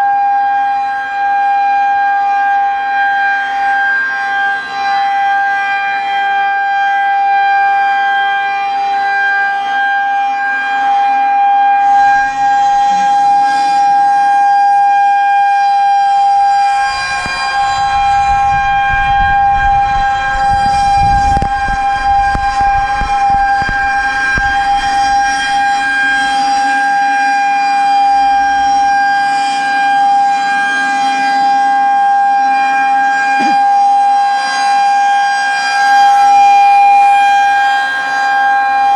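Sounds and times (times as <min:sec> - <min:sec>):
warning siren steady tone: 0:00.0 - 0:38.9
low rumble on microphone: 0:16.6 - 0:26.0.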